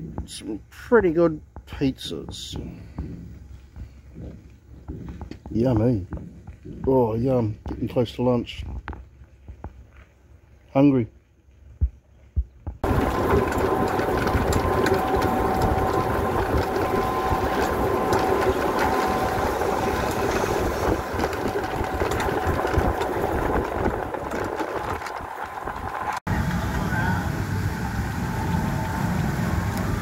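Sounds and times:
vehicle motor rumbling: 11.4s - 30.0s
faint steady whine: 12.8s - 30.0s.

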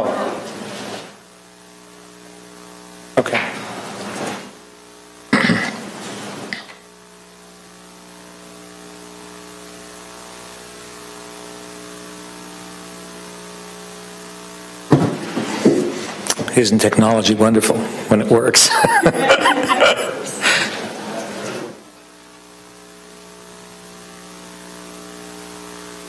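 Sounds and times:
electrical mains hum: 0.0s - 26.0s
people talking and chuckling: 18.5s - 21.8s.

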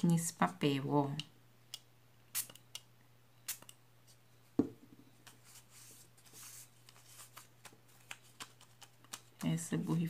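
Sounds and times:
knock: 4.6s - 5.0s.

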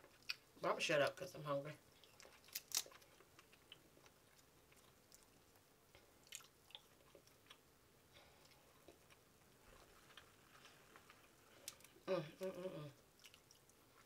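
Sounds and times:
soft chewing: 1.8s - 14.0s
crab shell cracking: 2.1s - 3.1s.

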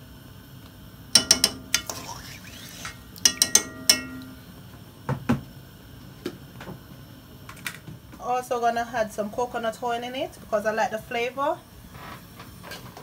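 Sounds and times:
metal utensil clinking on pot: 1.2s - 2.4s, 3.2s - 4.6s.

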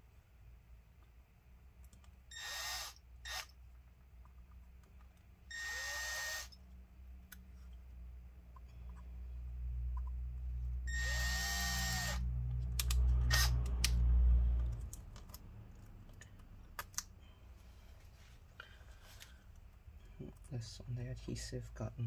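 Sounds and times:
electric drill grinding plastic: 2.3s - 3.5s, 5.5s - 6.6s, 10.9s - 12.2s.

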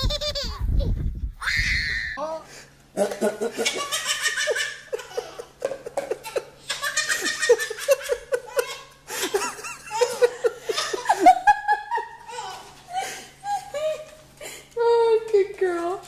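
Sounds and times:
baby laughing: 0.0s - 0.7s, 3.0s - 11.3s.

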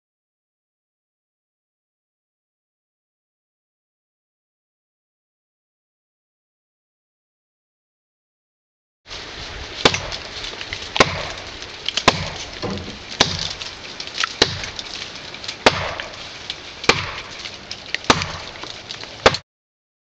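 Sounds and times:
axe chopping tree trunk: 9.8s - 10.2s, 10.9s - 14.8s, 15.6s - 16.2s, 16.8s - 19.4s.

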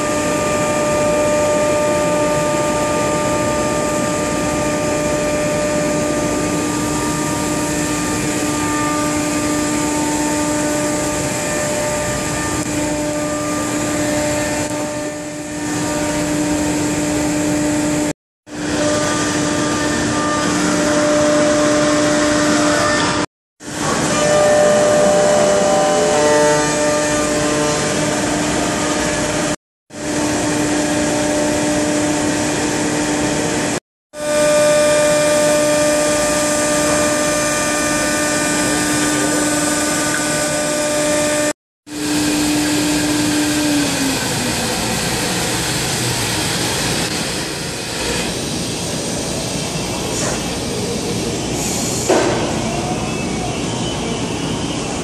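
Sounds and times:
cutting and machine noise: 0.0s - 51.0s
router spindle whining: 34.2s - 45.3s.

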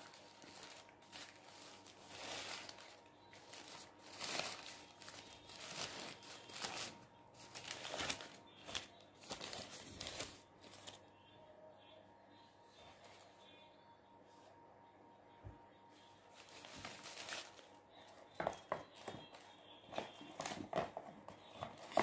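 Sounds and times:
paper wrapper crinkling: 0.0s - 11.0s, 16.3s - 22.0s.

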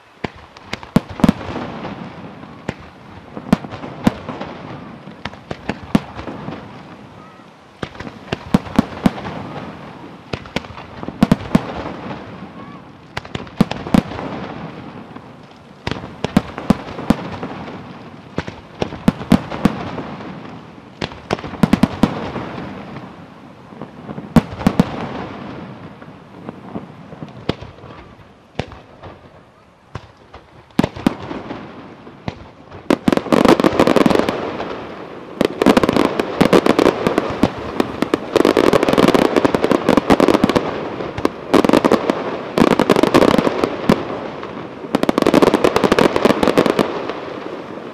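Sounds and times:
fireworks crackling: 0.0s - 47.9s.

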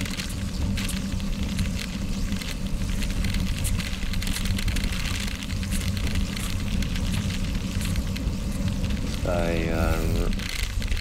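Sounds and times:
bike tyres crunching on gravel: 0.0s - 11.0s.

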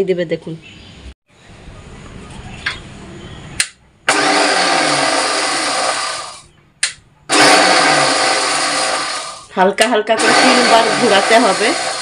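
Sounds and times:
mixer grinder whirring: 4.1s - 6.5s, 7.3s - 9.5s, 10.1s - 12.0s.

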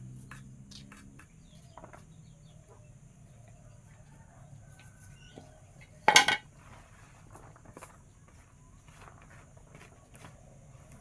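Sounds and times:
faint clicks and rustles: 4.7s - 11.0s
metal blade clatter: 6.1s - 6.4s.

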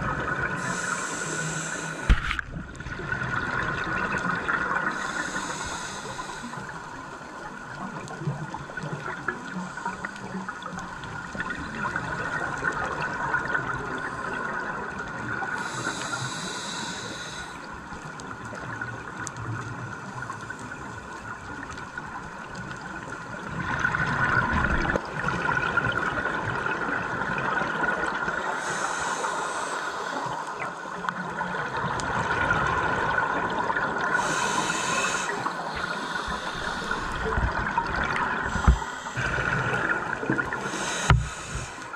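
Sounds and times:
muffled underwater hiss: 0.0s - 41.9s
exhaled bubbles bursting: 36.7s - 41.7s.

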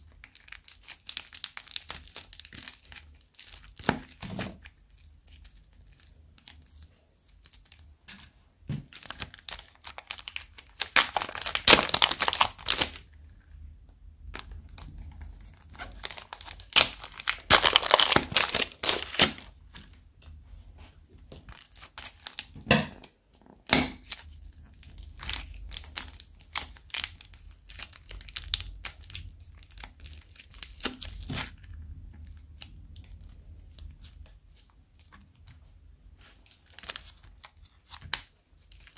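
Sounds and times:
plastic bags crinkling and tearing: 0.0s - 13.1s, 14.4s - 19.9s, 21.3s - 22.6s, 23.6s - 35.2s, 36.2s - 38.9s.

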